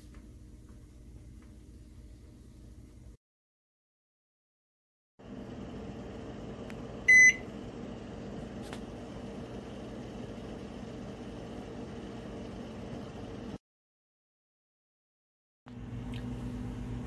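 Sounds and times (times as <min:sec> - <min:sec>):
steady low hum: 0:05.2 - 0:13.6
high electronic timer beep: 0:07.1 - 0:07.4.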